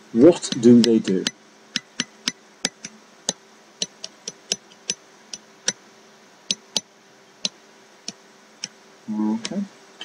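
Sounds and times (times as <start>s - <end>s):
faint steady hum: 0.0s - 10.0s
pen clicking on whiteboard: 0.3s - 5.8s, 6.5s - 8.8s.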